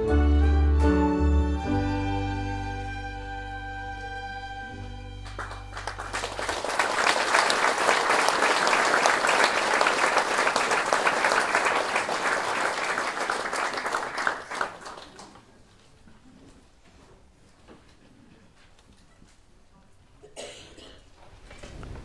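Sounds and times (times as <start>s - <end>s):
orchestral chord: 0.0s - 6.0s
audience applause: 5.2s - 15.6s.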